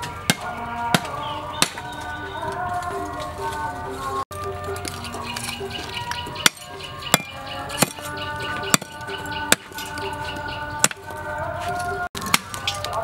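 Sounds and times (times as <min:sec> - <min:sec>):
cleaver knocking charcoal on concrete: 0:00.0 - 0:02.1, 0:04.8 - 0:10.1, 0:12.2 - 0:13.0
background music: 0:00.0 - 0:13.0.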